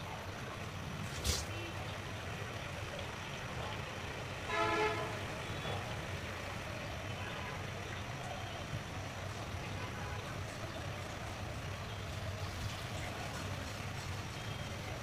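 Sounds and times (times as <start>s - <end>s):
vehicle horn toot: 4.5s - 5.3s.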